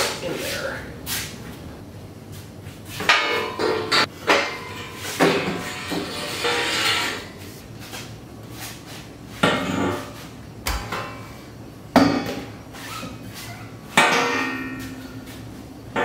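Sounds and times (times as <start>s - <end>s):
steel tubing clanking on car body: 3.0s - 7.3s, 14.0s - 15.2s.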